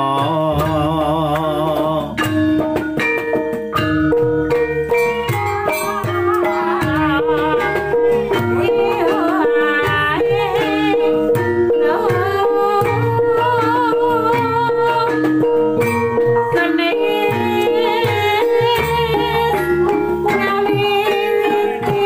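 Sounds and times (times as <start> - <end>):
hand drum strokes: 0.0 - 22.0
gongs and metallophones ringing: 0.3 - 22.0
person singing wavering melody: 4.8 - 22.0.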